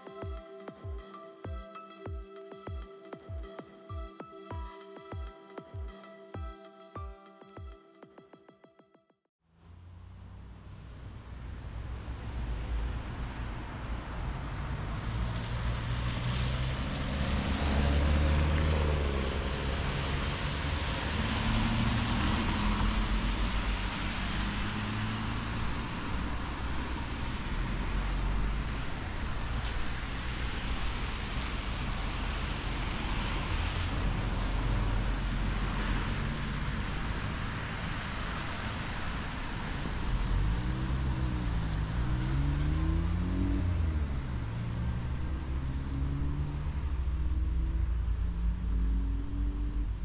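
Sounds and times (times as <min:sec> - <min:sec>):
engine hum of passing vehicles: 0:09.5 - 0:50.0
tyres hissing on wet asphalt: 0:15.6 - 0:42.8.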